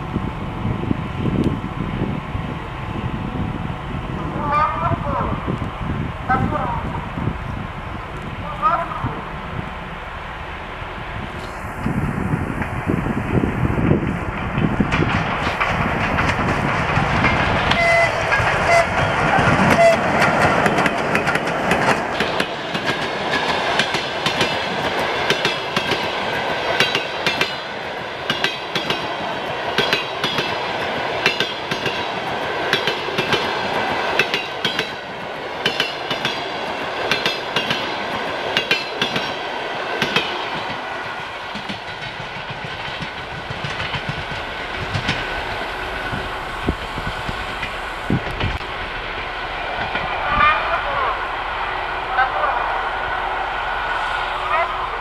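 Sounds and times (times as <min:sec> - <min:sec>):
electric locomotive passing: 0:00.0 - 0:55.0
train wheels clicking over rail joints: 0:13.8 - 0:50.2.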